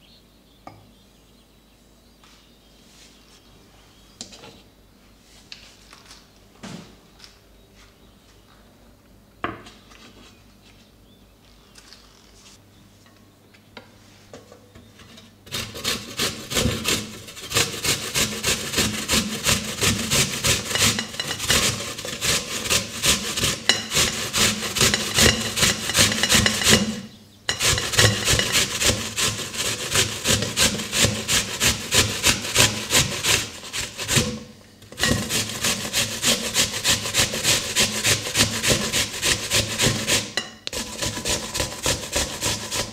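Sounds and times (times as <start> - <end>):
apples grated on hand grater: 15.5 - 42.9.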